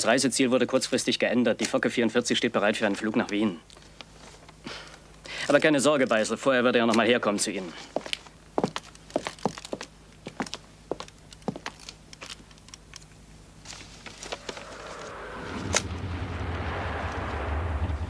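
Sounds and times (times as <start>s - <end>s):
distant artillery rumble: 13.9s - 18.0s.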